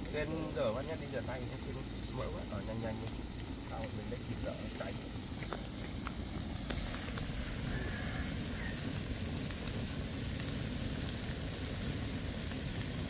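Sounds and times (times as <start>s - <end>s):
faint high chirps: 5.8s - 11.4s.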